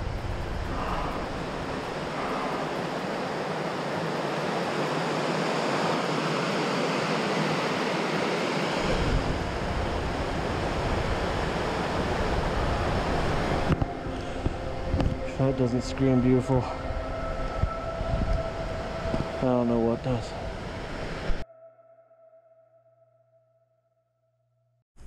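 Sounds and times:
wind rumbling on microphone: 0.0s - 4.7s, 8.7s - 21.4s.

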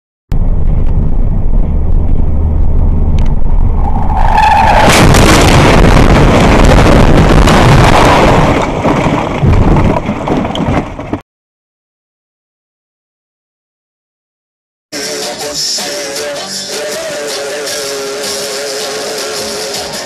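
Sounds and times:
car running on highway: 0.3s - 11.2s
tires squealing: 3.4s - 5.7s
car crash with scraping and banging: 4.0s - 11.2s.

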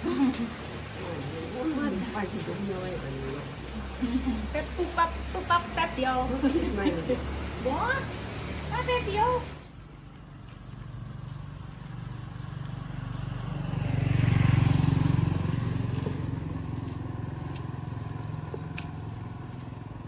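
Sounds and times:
vehicle engine passing: 0.0s - 20.0s.

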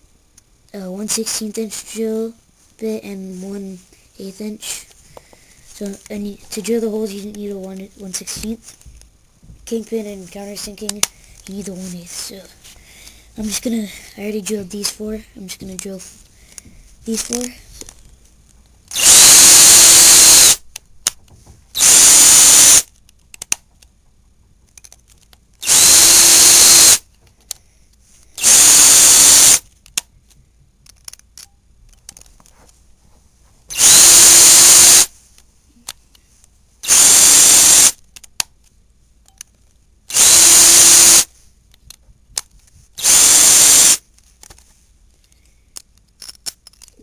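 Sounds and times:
power drill drilling wood: 18.9s - 20.6s, 21.8s - 22.9s, 25.6s - 27.0s, 28.4s - 29.6s, 33.7s - 35.1s, 36.8s - 38.0s, 40.1s - 41.3s, 43.0s - 44.0s.

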